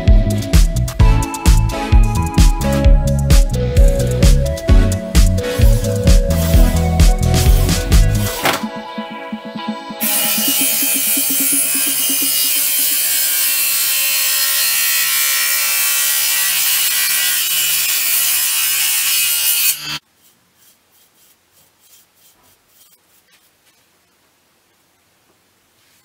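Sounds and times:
bench saw cutting wood: 10.0s - 23.3s.

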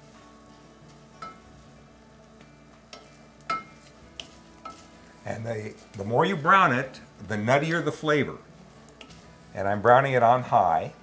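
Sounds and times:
rice sizzling and bubbling: 0.0s - 11.0s
wooden spoon knocking metal pan: 2.9s - 4.8s.

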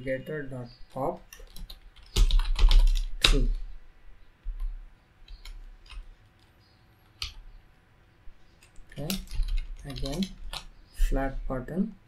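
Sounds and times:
computer keyboard typing: 0.9s - 3.6s, 4.4s - 7.5s, 8.6s - 10.7s.

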